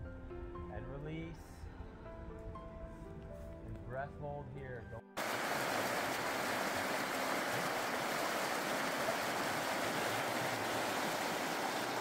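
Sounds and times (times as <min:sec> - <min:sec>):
river water flowing: 0:05.2 - 0:12.0.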